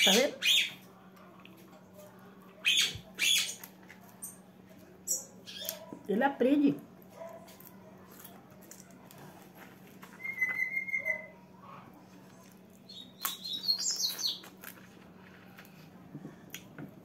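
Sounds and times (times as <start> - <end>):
high bird chirps: 10.2 - 11.3, 12.9 - 14.5
songbird whistling: 10.2 - 11.3, 12.9 - 14.5.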